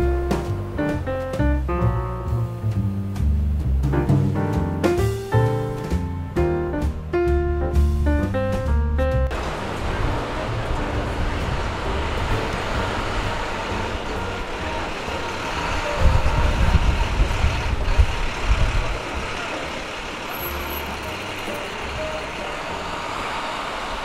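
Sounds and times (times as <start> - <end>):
street traffic hum: 0.0 - 24.0
loud low rumble: 6.8 - 24.0.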